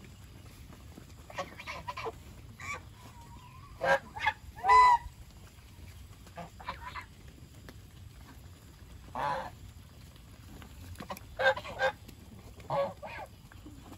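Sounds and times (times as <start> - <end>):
geese honking: 1.3 - 5.2, 6.4 - 7.1, 9.1 - 9.6, 11.0 - 12.0, 12.6 - 13.4.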